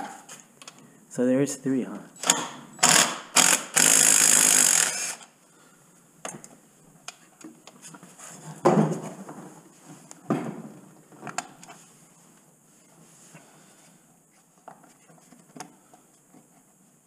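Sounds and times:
cordless drill spinning: 0:02.8 - 0:05.3.

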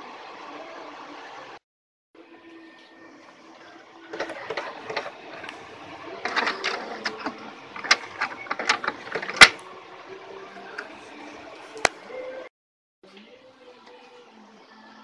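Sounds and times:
power cable clicking and knocking: 0:04.1 - 0:09.6.

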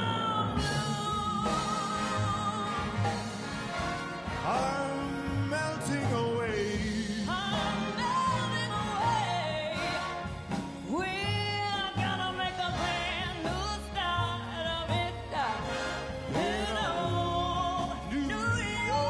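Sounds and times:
woman singing wordless vocal run: 0:00.0 - 0:03.2, 0:10.9 - 0:19.0
live orchestra and rhythm section: 0:00.0 - 0:19.0
steady bass line: 0:00.0 - 0:19.0.

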